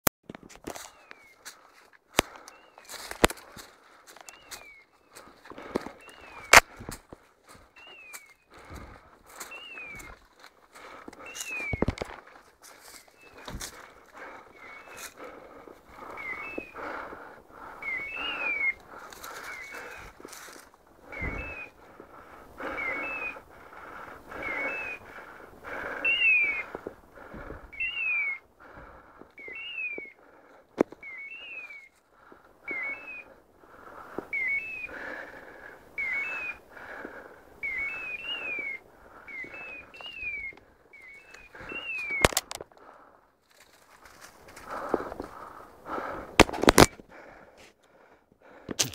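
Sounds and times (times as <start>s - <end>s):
rustling through dry brush: 0.3s - 47.4s, 48.5s - 48.9s
sharp crack: 46.4s - 47.0s.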